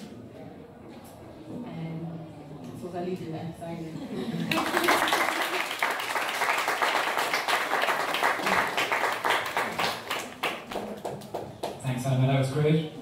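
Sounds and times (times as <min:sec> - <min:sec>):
audience applauding: 0:04.4 - 0:11.9.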